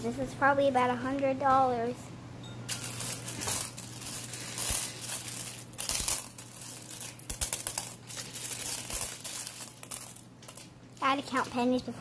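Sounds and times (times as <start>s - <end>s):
coins clinking and jingling: 2.7s - 10.7s.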